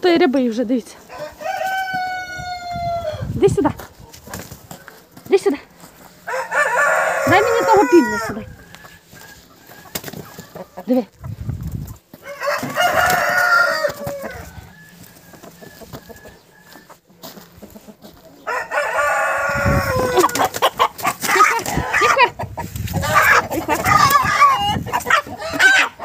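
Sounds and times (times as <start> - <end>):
chickens clucking and squawking: 0.4 - 26.0
rooster crowing: 1.1 - 3.3, 6.2 - 9.9, 12.2 - 16.8, 18.4 - 20.5.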